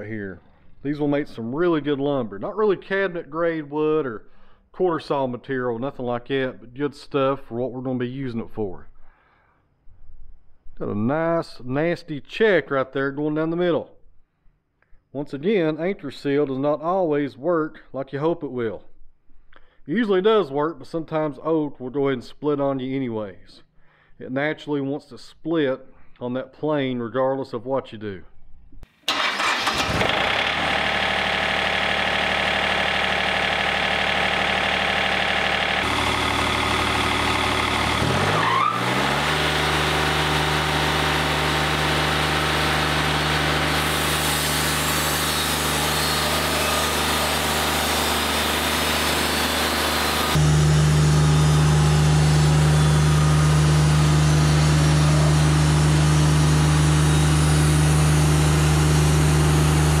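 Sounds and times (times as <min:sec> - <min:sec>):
sawmill engine running: 0:29.1 - 1:00.0.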